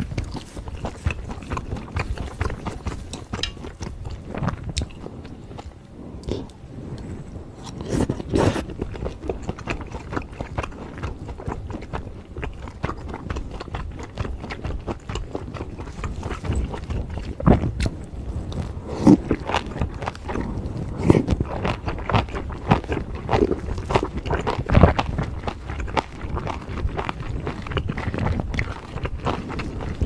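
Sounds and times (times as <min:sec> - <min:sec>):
close chewing and biting: 0:00.0 - 0:07.0, 0:07.6 - 0:30.0.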